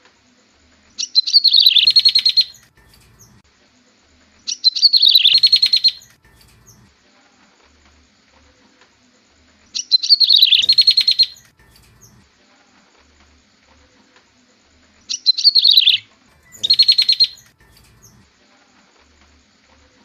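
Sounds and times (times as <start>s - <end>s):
bird song with fast trill: 1.0s - 3.4s, 4.4s - 6.9s, 9.7s - 12.2s, 15.1s - 18.3s.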